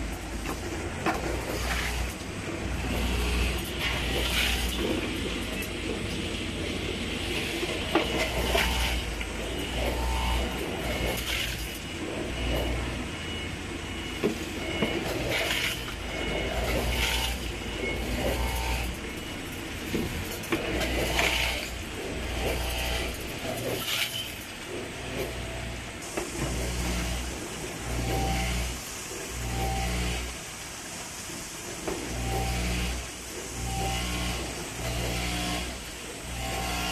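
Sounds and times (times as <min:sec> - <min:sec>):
machine humming: 0:00.0 - 0:36.9.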